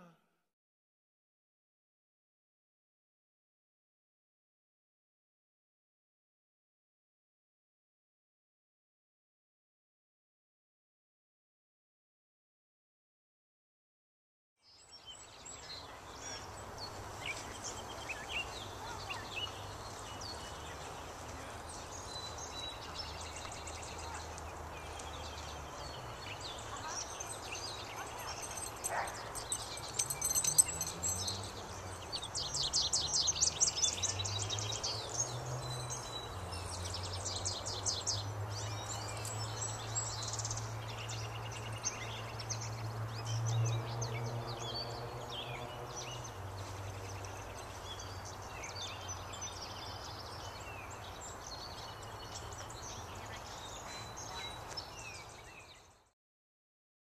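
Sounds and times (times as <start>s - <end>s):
birds chirping and singing: 14.7s - 56.0s.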